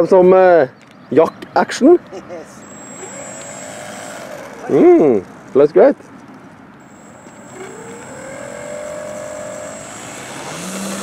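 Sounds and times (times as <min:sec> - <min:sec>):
model plane motor and propeller: 0:02.4 - 0:11.0.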